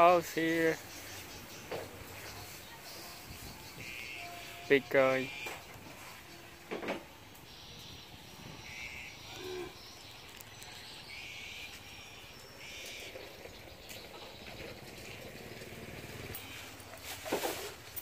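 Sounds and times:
low animal call: 0:07.5 - 0:10.0
high buzzy animal calls: 0:07.5 - 0:16.8.

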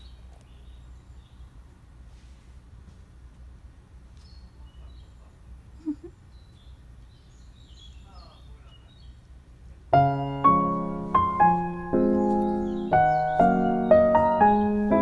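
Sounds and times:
faint bird chirps: 0:04.2 - 0:09.2, 0:11.9 - 0:15.0
background piano music: 0:09.9 - 0:15.0.

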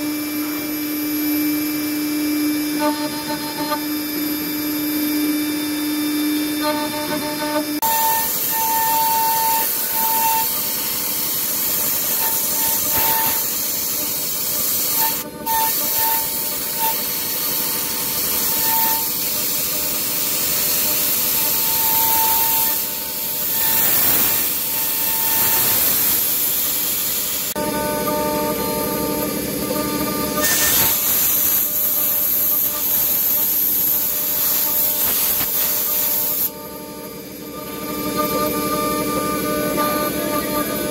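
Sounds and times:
milling machine engraving metal: 0:00.0 - 0:40.9
high cutting tone: 0:00.1 - 0:40.9
steady nozzle hiss: 0:30.6 - 0:36.5.

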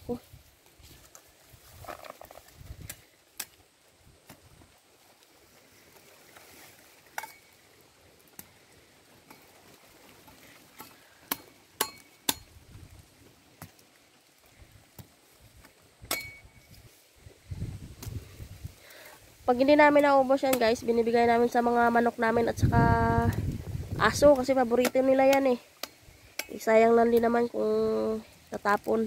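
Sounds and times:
machete chopping roots: 0:10.8 - 0:12.6, 0:15.0 - 0:16.6, 0:24.8 - 0:26.6.

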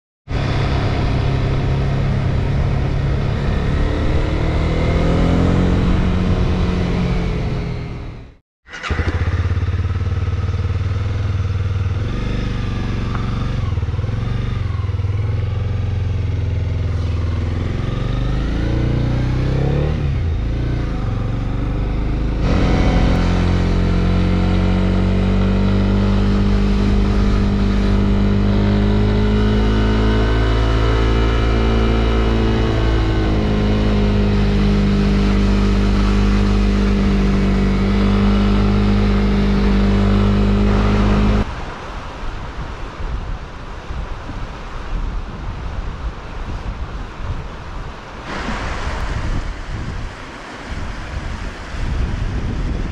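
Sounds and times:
motorcycle engine running: 0:08.7 - 0:18.4, 0:20.7 - 0:41.4.

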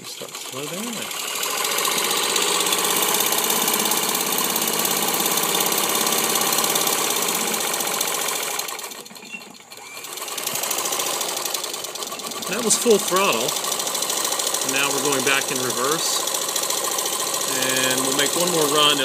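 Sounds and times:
sewing machine clatter: 0:00.0 - 0:19.0.

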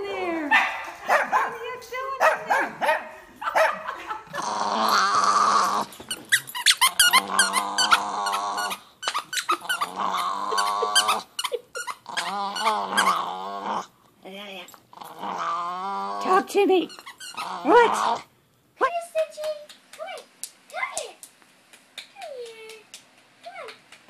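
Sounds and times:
small dog growling: 0:04.2 - 0:14.0, 0:14.9 - 0:18.3.

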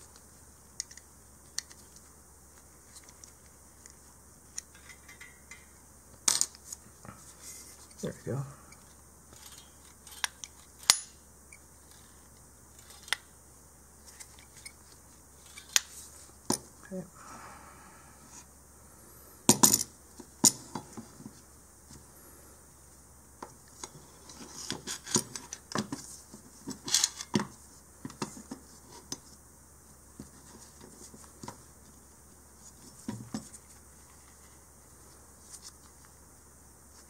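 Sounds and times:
metal parts clicking and clacking: 0:09.3 - 0:11.2.

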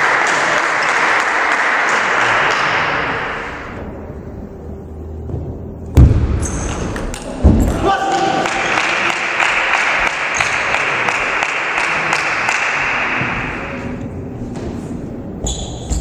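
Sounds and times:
spectators applauding: 0:00.0 - 0:02.6, 0:08.0 - 0:13.8.

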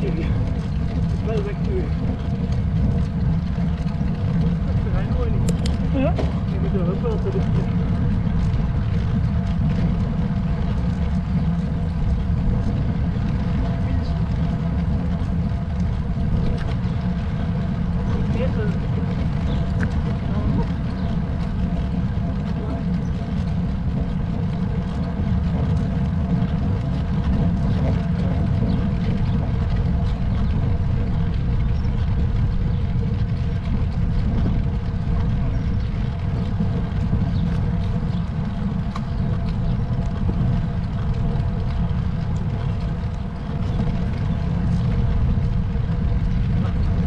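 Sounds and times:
faint hum: 0:00.0 - 0:47.0
wind buffeting microphone: 0:00.0 - 0:47.0.

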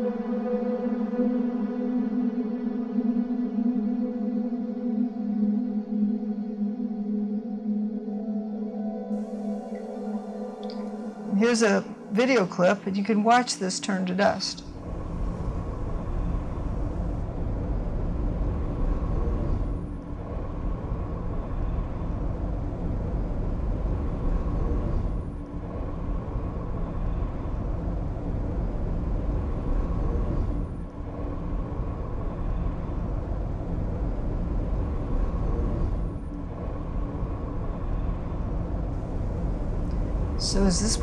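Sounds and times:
faint steady hum: 0:00.0 - 0:41.0
low rumbling noise: 0:09.1 - 0:41.0.

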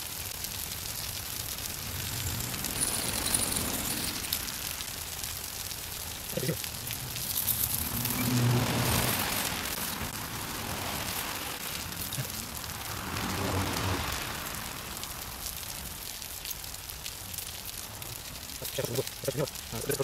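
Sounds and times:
rain on pavement: 0:00.0 - 0:20.0
low rumbling rush: 0:01.0 - 0:15.7.

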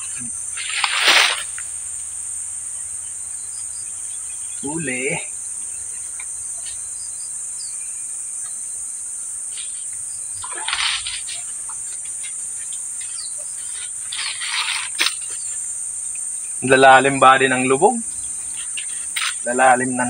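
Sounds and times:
insects droning: 0:00.0 - 0:20.0
brief rustling: 0:10.4 - 0:15.7.

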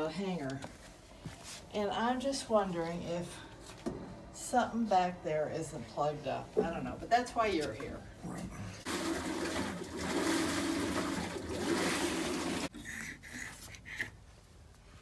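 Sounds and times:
washing machine water rushing: 0:08.8 - 0:12.7.

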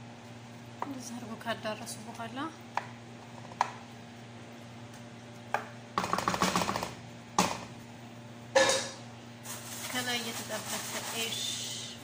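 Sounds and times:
wooden spoon knocking on metal tray: 0:08.6 - 0:09.0.

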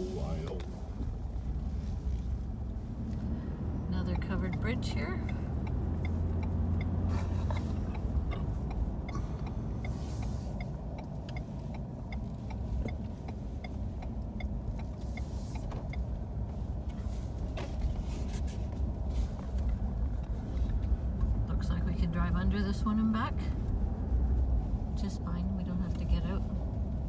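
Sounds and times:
road and engine rumble: 0:00.0 - 0:27.0
faint regular ticking: 0:03.9 - 0:17.0.

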